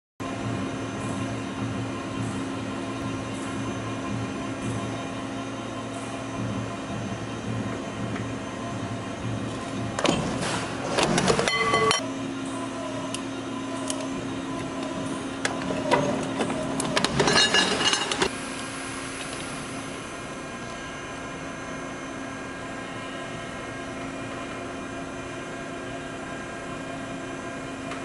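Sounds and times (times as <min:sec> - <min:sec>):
metal clanks and knocks: 0:10.0 - 0:12.0, 0:15.4 - 0:18.3.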